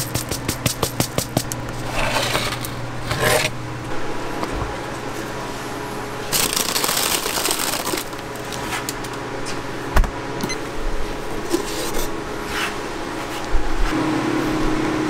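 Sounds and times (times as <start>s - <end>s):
steady refrigerator hum: 0.0s - 15.0s
metal tray scraping on wire shelf: 1.8s - 3.6s.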